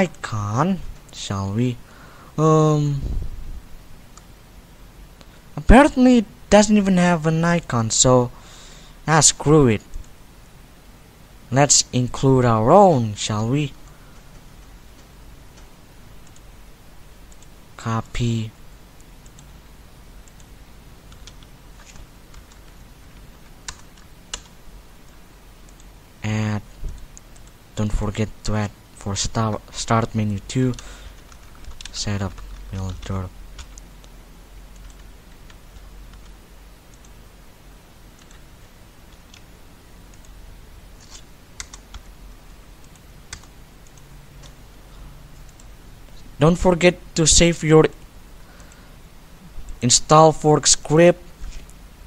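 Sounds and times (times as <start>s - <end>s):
faint low hum: 0.0s - 52.0s
computer mouse clicks: 13.8s - 16.5s, 17.3s - 17.5s, 19.0s - 19.6s, 21.1s - 25.9s, 30.7s - 37.2s, 40.1s - 40.4s, 41.0s - 42.1s, 42.8s - 44.6s, 45.4s - 46.3s
keyboard clicks: 13.8s - 16.5s, 20.2s - 25.9s, 30.7s - 37.2s, 41.0s - 42.1s, 42.8s - 44.6s, 45.4s - 46.2s
mouse and keyboard clicks: 41.0s - 41.8s.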